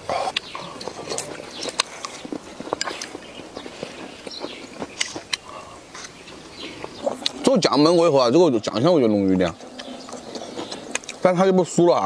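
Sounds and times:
man chewing: 0:00.0 - 0:07.4, 0:09.6 - 0:11.2.

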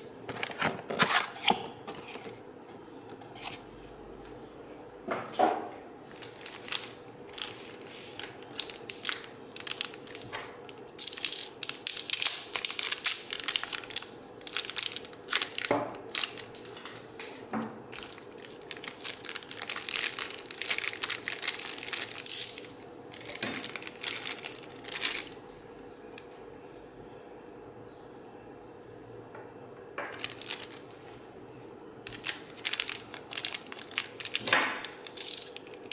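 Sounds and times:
plastic bags crinkling: 0:06.0 - 0:25.4, 0:30.1 - 0:31.0, 0:32.1 - 0:35.9.

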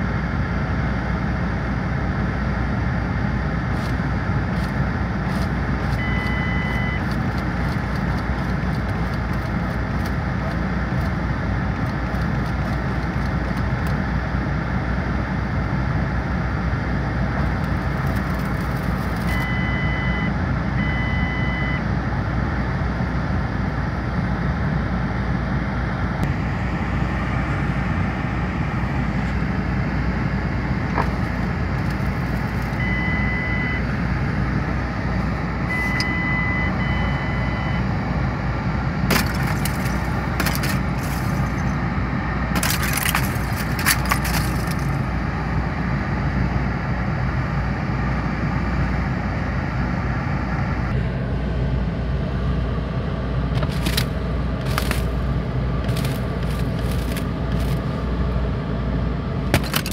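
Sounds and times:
steady low rumble: 0:00.0 - 0:59.9
ice cracking on car window: 0:39.1 - 0:41.6, 0:42.6 - 0:45.0, 0:53.6 - 0:55.1, 0:55.9 - 0:57.8.

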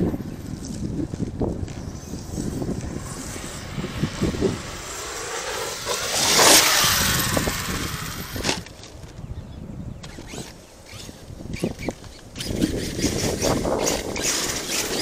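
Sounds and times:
electric motor whining: 0:01.7 - 0:08.7
loud hissing rush: 0:02.3 - 0:08.6.

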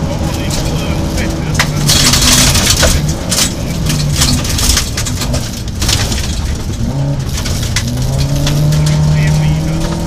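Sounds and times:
gravel rattling against underbody: 0:00.0 - 0:10.0
rally car engine under load: 0:00.0 - 0:10.0.

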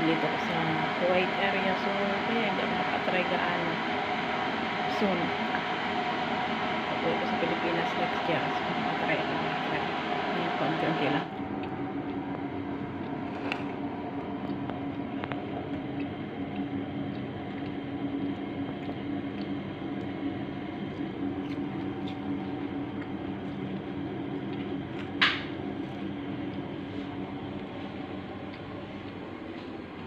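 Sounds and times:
low machine hum: 0:00.0 - 0:30.0.

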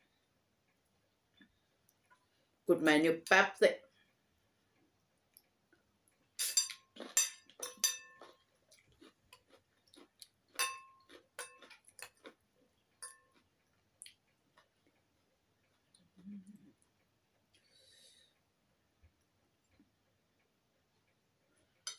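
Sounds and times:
cutlery clinking on ceramic bowl: 0:06.4 - 0:08.4, 0:10.5 - 0:12.2, 0:13.0 - 0:13.4.

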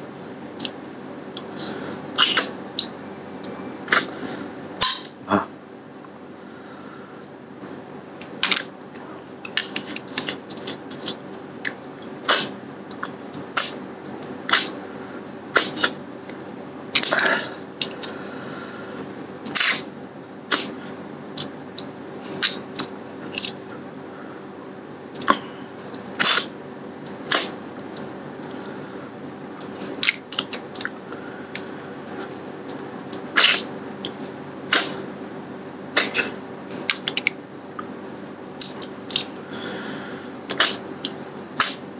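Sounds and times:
steady low hum: 0:00.0 - 0:41.9
man chewing with wet smacks: 0:08.2 - 0:14.8, 0:25.1 - 0:26.5, 0:29.6 - 0:35.0, 0:36.0 - 0:38.0, 0:38.6 - 0:39.4.

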